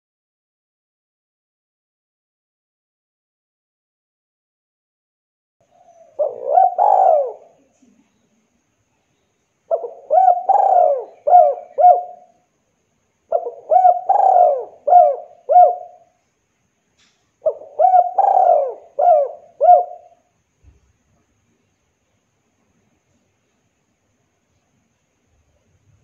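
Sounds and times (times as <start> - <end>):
dove cooing: 5.7 - 7.8, 9.7 - 12.4, 13.3 - 16.2, 17.4 - 20.3.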